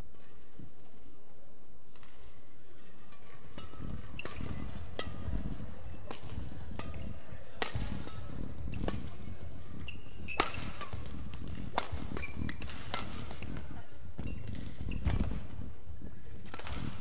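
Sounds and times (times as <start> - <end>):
racket hitting shuttlecock: 3.5 - 13.6, 16.4 - 17.0
shoe squeaks on court floor: 9.8 - 11.1, 12.1 - 13.1, 14.2 - 15.4.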